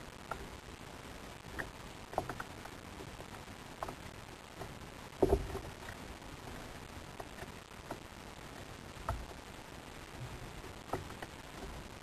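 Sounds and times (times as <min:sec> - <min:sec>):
sea noise: 0:00.0 - 0:12.0
wind: 0:00.0 - 0:12.0
knocks and clicks on kayak: 0:04.6 - 0:05.8, 0:10.8 - 0:11.8.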